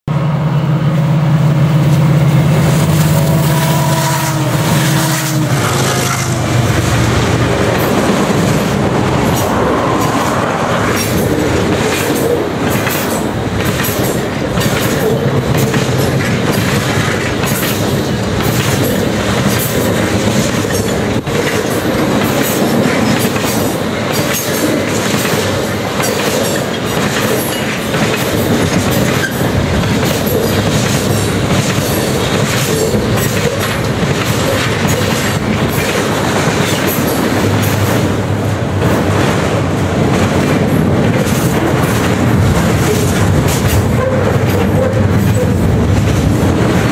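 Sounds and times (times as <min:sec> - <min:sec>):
diesel locomotive drone: 0:00.0 - 0:46.9
train cars rumbling: 0:00.1 - 0:46.9
wheels clacking over rails: 0:04.4 - 0:46.9.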